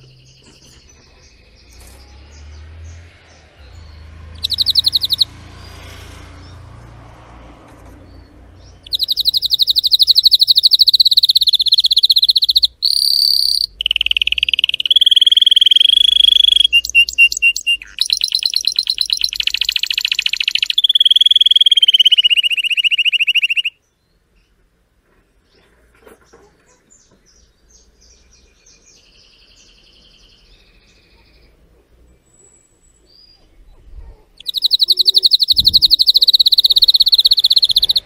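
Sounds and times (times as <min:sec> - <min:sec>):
canary singing rapid trills: 0:00.2 - 0:06.6, 0:08.1 - 0:23.8, 0:34.4 - 0:38.0.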